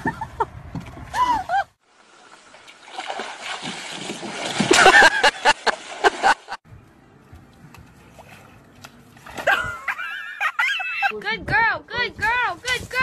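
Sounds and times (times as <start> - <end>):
water splashing and sloshing: 0.0 - 6.6, 7.5 - 10.2.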